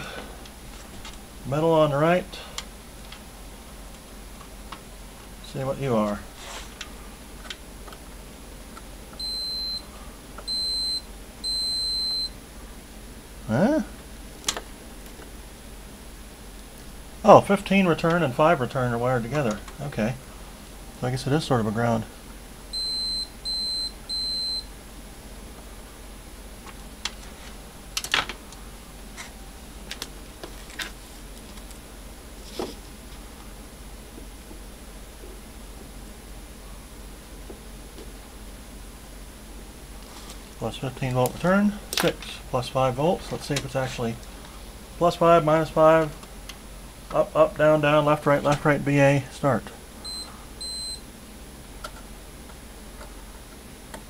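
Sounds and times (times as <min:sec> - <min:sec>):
multimeter continuity beeps: 0:09.2 - 0:12.4, 0:22.7 - 0:24.7, 0:50.0 - 0:51.0.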